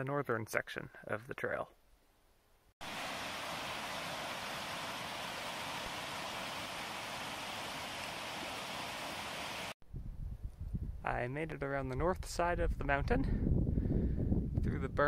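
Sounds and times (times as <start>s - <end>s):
creek water rushing: 2.8s - 9.8s.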